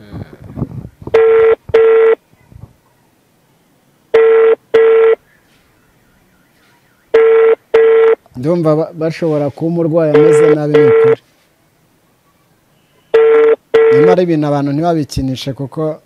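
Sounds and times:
phone ringback beeps: 1.1s - 2.2s, 4.1s - 5.2s, 7.1s - 8.2s, 10.2s - 11.2s, 13.1s - 14.2s.

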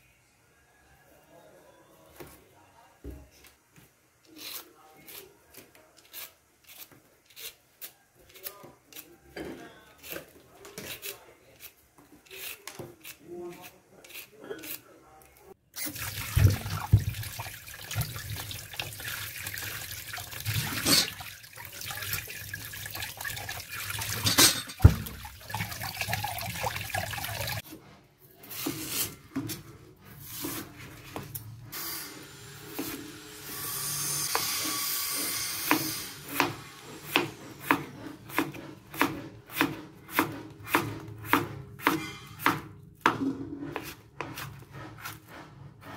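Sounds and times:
peeler scraping yam skin: 4.2s - 15.0s, 43.6s - 45.9s
knife chopping on wooden board: 35.6s - 45.2s.

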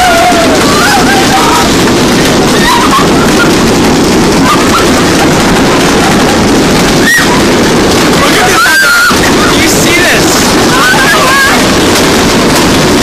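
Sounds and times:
hail and heavy rain pounding: 0.0s - 13.0s.

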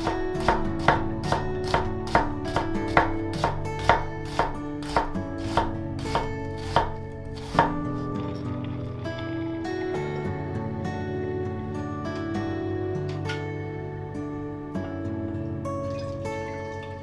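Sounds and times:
knife chopping on cutting board: 0.0s - 7.8s
background music with sustained tones: 0.0s - 17.0s.

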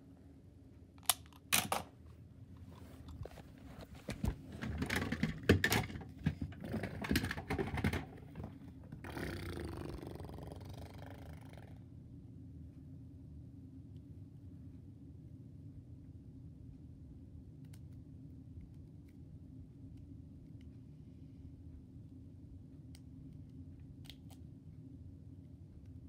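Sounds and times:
phone being handled: 2.6s - 6.6s
plastic toys rattling: 4.5s - 8.6s.

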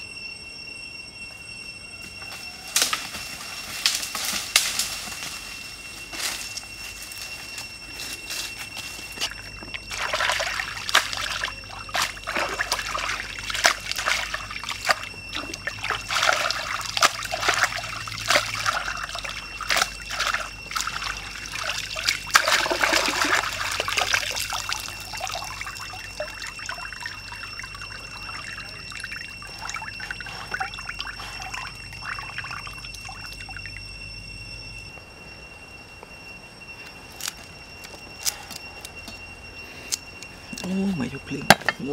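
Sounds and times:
water splashing and sloshing: 9.1s - 34.0s
water trickling: 9.3s - 34.1s.

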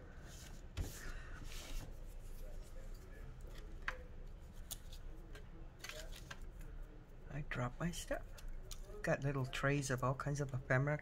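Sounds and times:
paper rustling: 5.8s - 6.5s.

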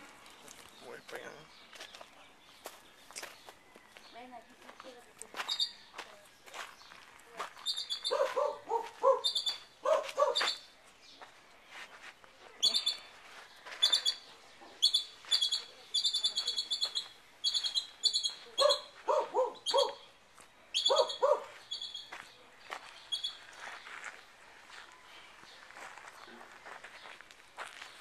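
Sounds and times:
bird chirping high-pitched: 5.4s - 5.9s, 7.6s - 10.7s, 12.6s - 13.1s, 13.7s - 20.1s, 20.7s - 22.3s, 23.0s - 23.5s
dog barking: 8.1s - 10.6s, 18.6s - 20.0s, 20.8s - 21.6s.

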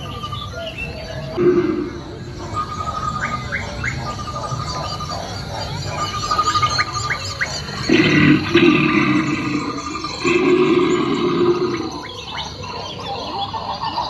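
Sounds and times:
bird call with trill and chirps: 0.0s - 14.0s
low animal call: 1.3s - 2.6s, 7.7s - 12.3s.

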